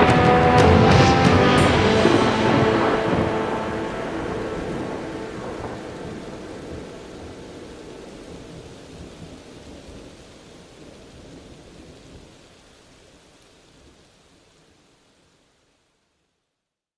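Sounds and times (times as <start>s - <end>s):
thunder rumbling: 0.0s - 12.3s
rain: 0.0s - 16.8s.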